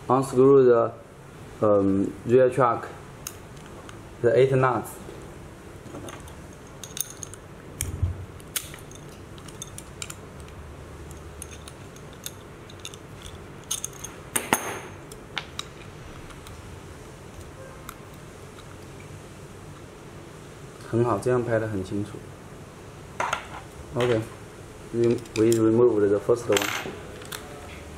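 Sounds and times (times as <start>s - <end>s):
allen key clinking on metal bolts: 6.0s - 7.4s, 8.5s - 15.0s.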